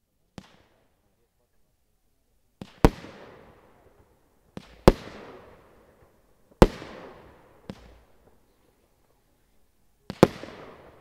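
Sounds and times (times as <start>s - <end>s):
firework launch pops: 4.6s - 5.5s, 6.6s - 8.2s.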